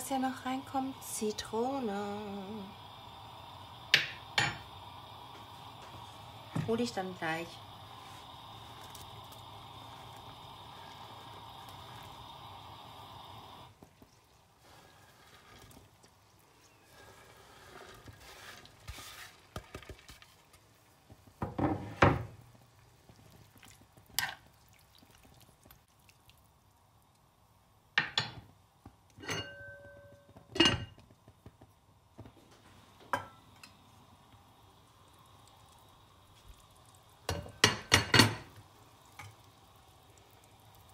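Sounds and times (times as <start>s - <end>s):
spoon stirring and scraping pan: 13.8s - 22.4s, 23.6s - 24.6s.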